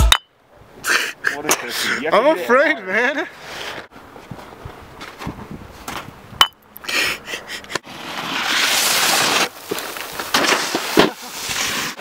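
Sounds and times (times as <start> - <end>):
snow spraying under snowboard: 7.9 - 12.0.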